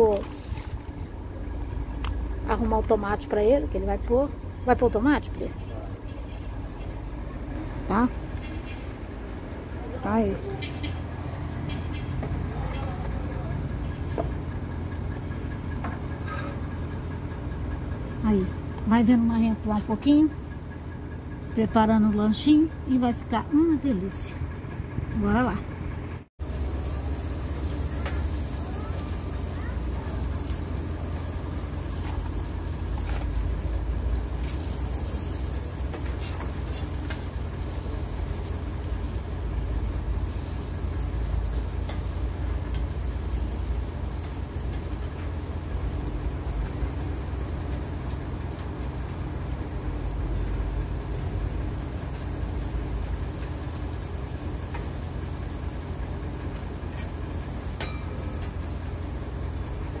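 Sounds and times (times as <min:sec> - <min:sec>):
burgers sizzling on griddle: 0:26.4 - 1:00.0.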